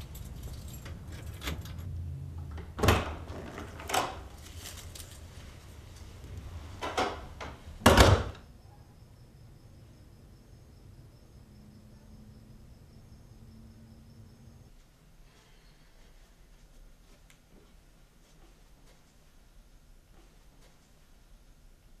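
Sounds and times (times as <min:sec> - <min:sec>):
knocks and clunks: 0:06.8 - 0:08.4.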